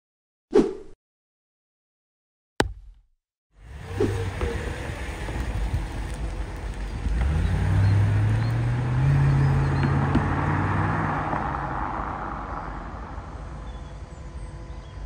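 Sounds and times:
car engine pulling away: 3.6s - 14.8s.

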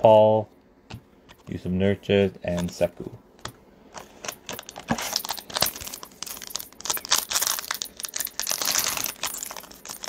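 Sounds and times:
wrapper crinkling and tearing: 4.0s - 10.0s.

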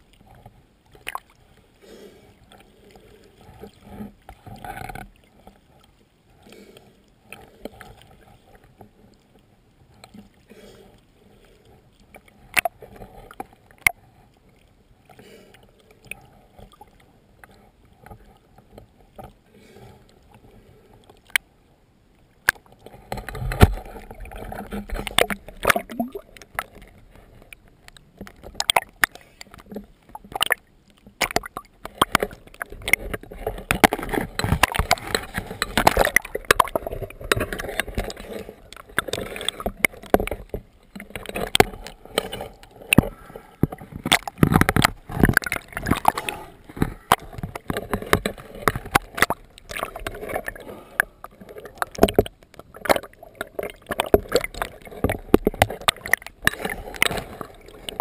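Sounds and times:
water slapping boat hull: 22.3s - 58.0s.

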